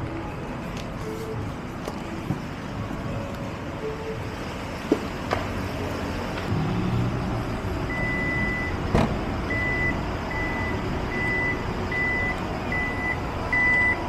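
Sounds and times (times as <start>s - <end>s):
engines and street traffic: 0.0s - 14.0s
vehicle reversing beeper: 7.9s - 8.8s, 9.5s - 14.0s.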